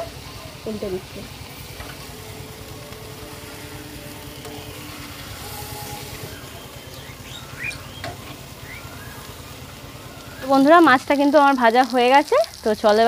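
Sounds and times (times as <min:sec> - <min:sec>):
fish frying on iron pan: 0:00.0 - 0:13.0
bird chirping: 0:05.2 - 0:11.0.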